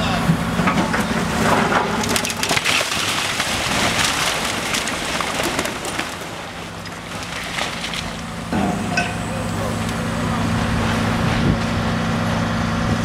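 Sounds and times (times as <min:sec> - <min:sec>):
excavator engine running: 0:00.0 - 0:13.0
masonry and rubble falling: 0:00.7 - 0:09.3.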